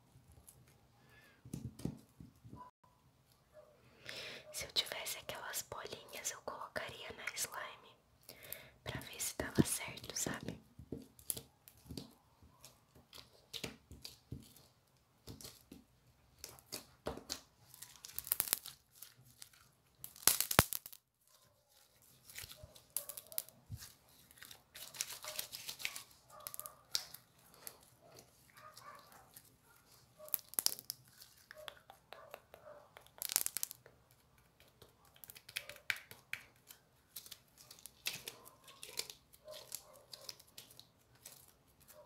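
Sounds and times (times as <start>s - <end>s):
slime crackling and popping: 16.4s - 21.1s, 30.2s - 41.9s.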